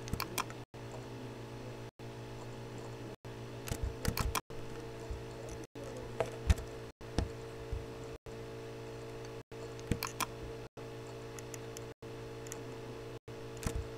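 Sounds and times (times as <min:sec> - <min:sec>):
electrical hum: 0:00.0 - 0:13.9
computer mouse clicking: 0:03.7 - 0:04.4, 0:09.2 - 0:10.3, 0:11.0 - 0:12.6, 0:13.6 - 0:13.9.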